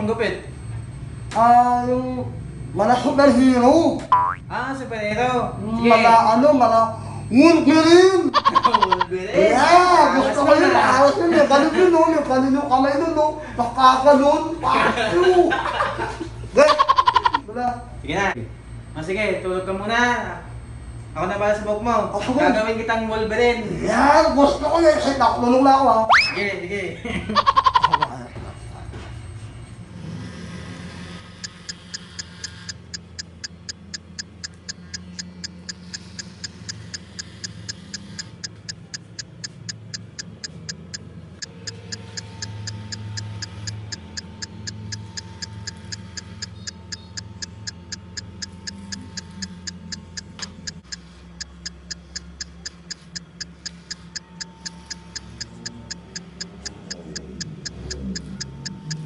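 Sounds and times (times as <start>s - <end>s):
low steady hum: 0.0s - 59.0s
clock ticking: 8.3s - 9.1s, 16.7s - 17.4s, 27.4s - 28.1s, 31.4s - 59.0s.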